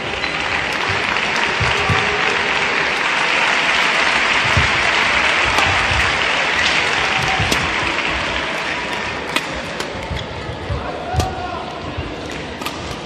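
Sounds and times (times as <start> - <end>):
crowd applauding: 0.0 - 9.3.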